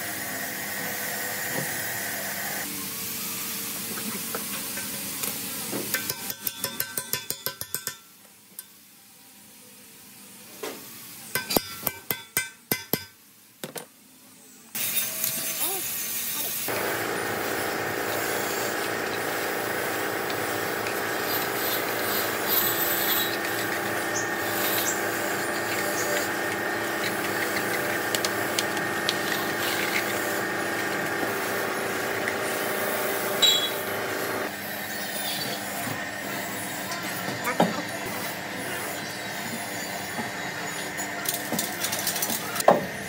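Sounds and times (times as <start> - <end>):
tool scraping metal: 16.7 - 34.3
power tool whining: 16.7 - 34.5.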